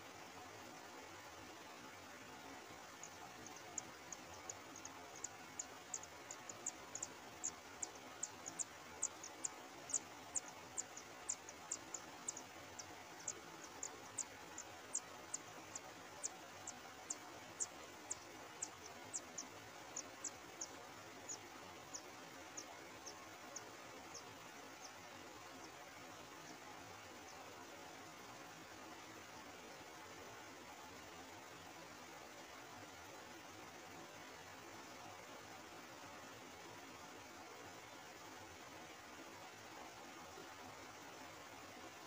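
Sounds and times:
faint hiss: 0.0 - 42.0
nestlings peeping: 2.7 - 27.5.

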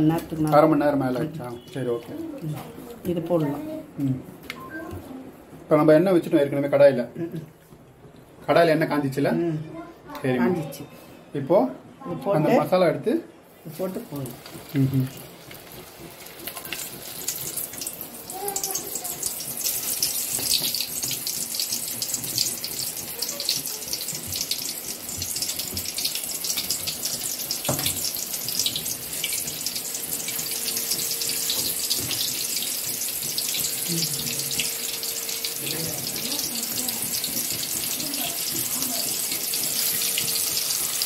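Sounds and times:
chicken sizzling in hot oil: 13.6 - 41.0.

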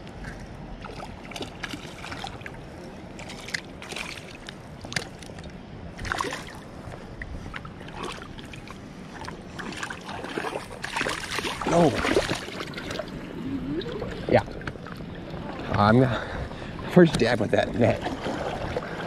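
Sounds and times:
creek water splashing: 0.8 - 19.0
flowing water rushing: 7.7 - 19.0.

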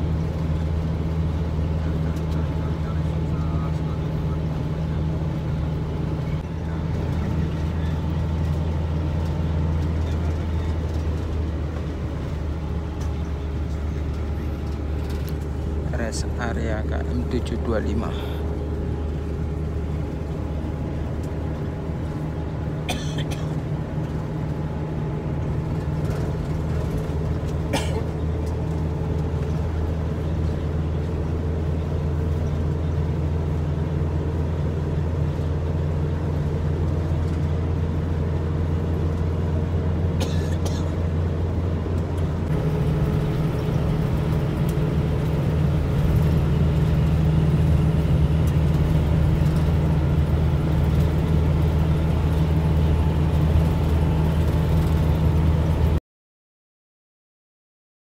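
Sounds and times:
bus engine hum: 0.0 - 56.0
road noise: 0.0 - 56.0.

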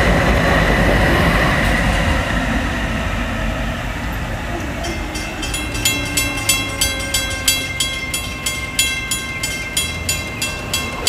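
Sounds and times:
train rumbling away: 0.0 - 11.0
warning bell ringing rapidly: 4.8 - 11.0.

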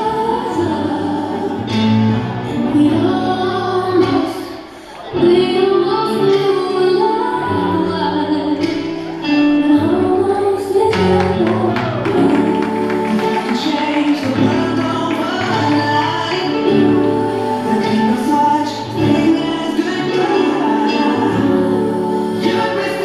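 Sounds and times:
dance music with sung vocals: 0.0 - 23.0.

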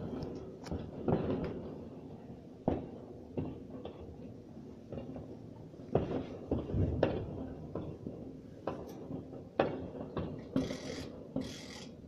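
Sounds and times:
fireworks and firecrackers banging: 0.0 - 12.0
hissing crackling bursts: 10.3 - 12.0.

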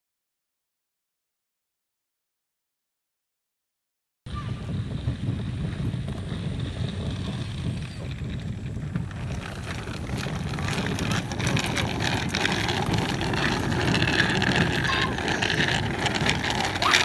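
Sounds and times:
wind rumbling on microphone: 4.3 - 17.0.

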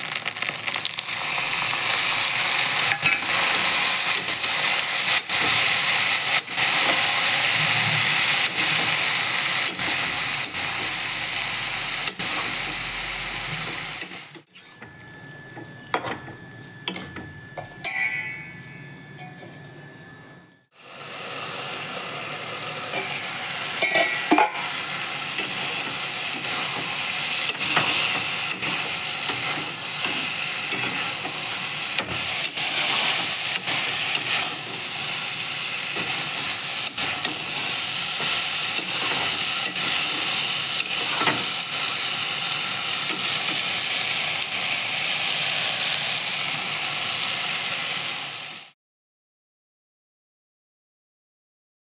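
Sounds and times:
food sizzling in a pan: 0.0 - 14.8, 20.7 - 48.8
spatula scraping a pan: 23.8 - 35.0, 35.9 - 41.8.

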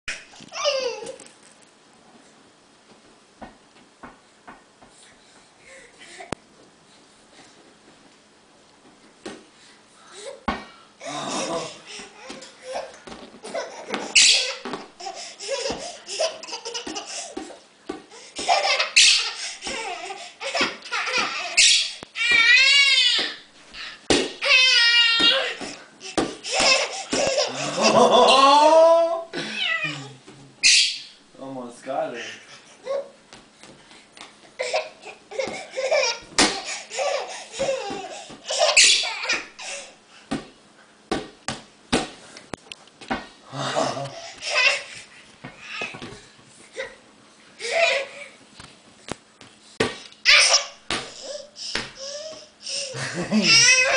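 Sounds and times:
toddler laughing: 0.5 - 1.2, 10.2 - 17.6, 18.3 - 23.3, 23.9 - 30.0, 34.6 - 39.9, 43.7 - 45.0, 47.6 - 48.4, 50.3 - 53.9
toddler high-pitched squeal: 14.2 - 14.6, 21.2 - 25.6
play ball bouncing and thudding: 24.1 - 24.4, 40.3 - 42.2, 50.9 - 52.0
person laughing: 27.2 - 30.1, 43.5 - 44.6, 52.7 - 53.9.

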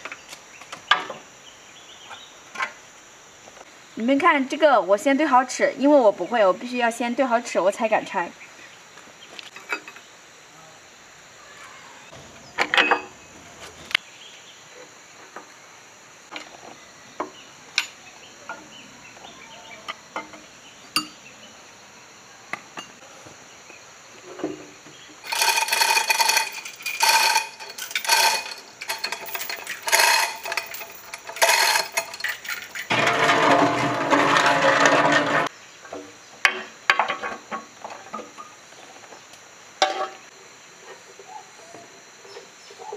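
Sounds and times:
metal chain clanking: 25.2 - 35.5
rough scraping: 25.2 - 35.5
ringing metallic clinks: 25.3 - 32.9.

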